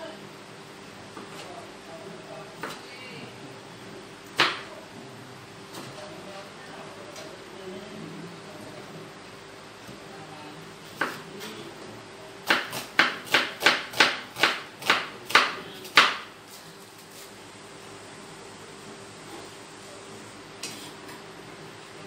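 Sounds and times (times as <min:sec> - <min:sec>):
knife chopping on cutting board: 0:04.4 - 0:04.7, 0:11.0 - 0:11.2, 0:12.4 - 0:16.3.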